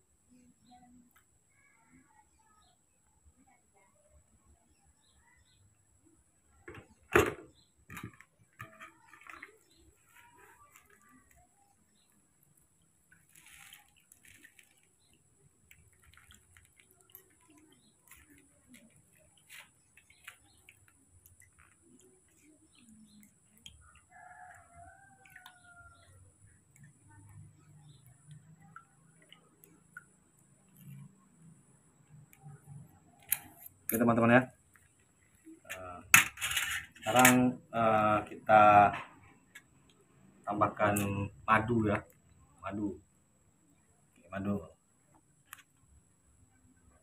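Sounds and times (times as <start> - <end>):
rustles: 8.6 - 23.8
kitchenware knocking and clinking: 36.2 - 37.4.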